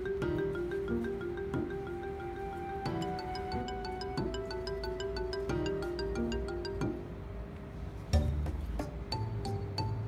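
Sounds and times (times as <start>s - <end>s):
music with quick pitched notes: 0.0s - 7.2s.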